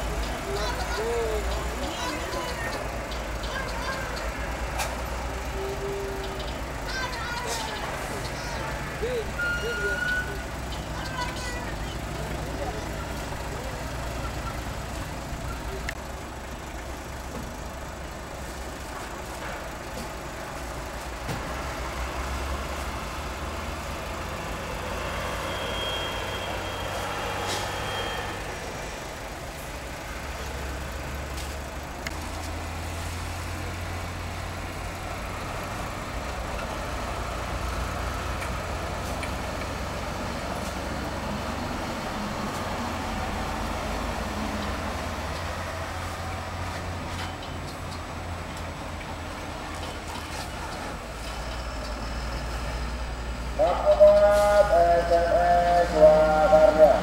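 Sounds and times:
diesel truck engines humming: 0.0 - 57.0
thin high squeal: 25.4 - 28.4.

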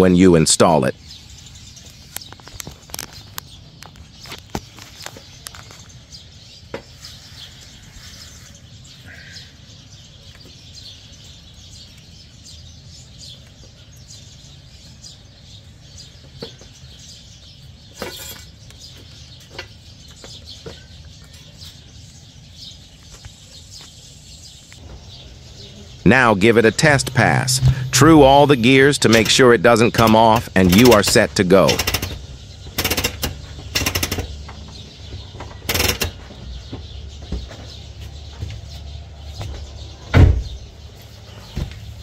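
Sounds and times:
birds chirping: 0.0 - 42.0
low steady hum: 24.8 - 32.2
sharp clicks: 26.8 - 34.4, 35.7 - 36.2
metal rattle: 30.0 - 34.4, 35.6 - 36.2.

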